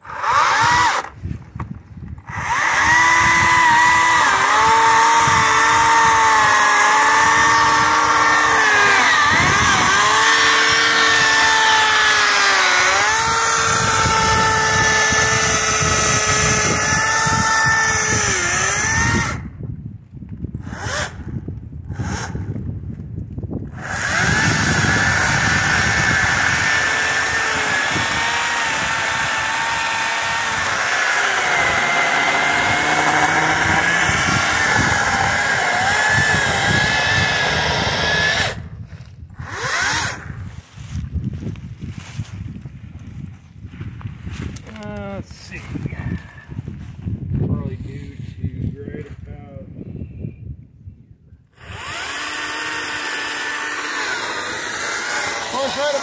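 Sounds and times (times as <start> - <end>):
electric chainsaw cutting log: 0.0 - 1.2, 2.2 - 19.5, 20.6 - 22.6, 23.7 - 38.8, 39.4 - 40.4, 51.6 - 56.0.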